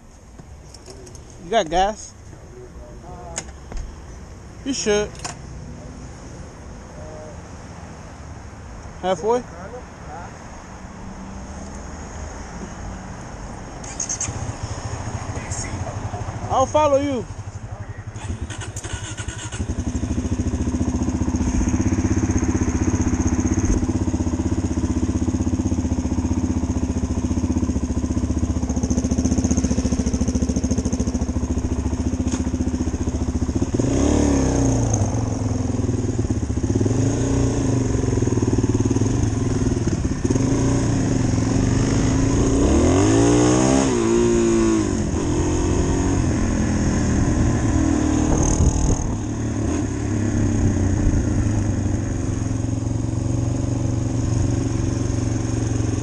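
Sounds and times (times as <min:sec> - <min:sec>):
motorcycle engine revving: 0:18.1 - 0:56.0.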